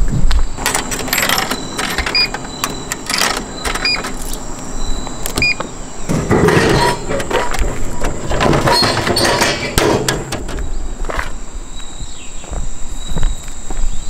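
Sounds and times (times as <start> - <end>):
coins clicking into machine: 0.6 - 4.4
vending machine mechanism running: 0.6 - 10.8
short electronic beeps: 1.3 - 4.1, 4.8 - 5.6.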